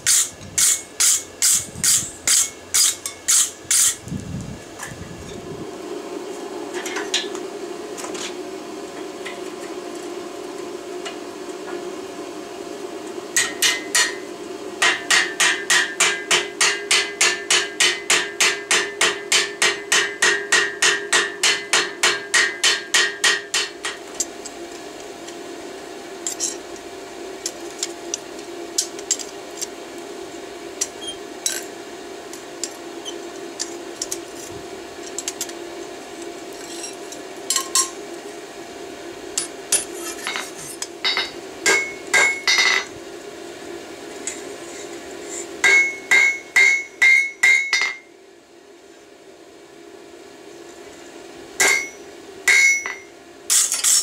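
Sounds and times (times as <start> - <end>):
hammer striking hot metal: 0.0 - 4.0, 13.4 - 14.2, 14.8 - 24.0, 39.4 - 42.9, 45.6 - 48.1, 51.6 - 54.0
steady hum: 0.0 - 54.0.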